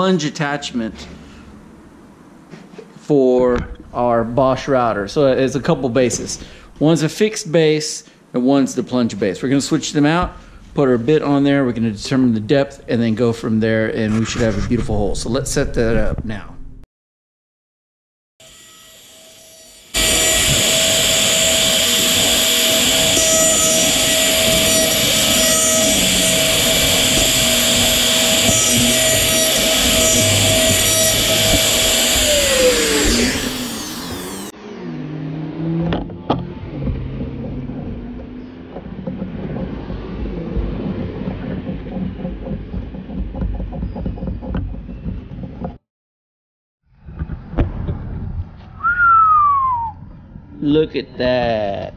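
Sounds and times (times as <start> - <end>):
router cutting wood: 18.4 - 34.9
router spinning down whine: 18.4 - 35.1.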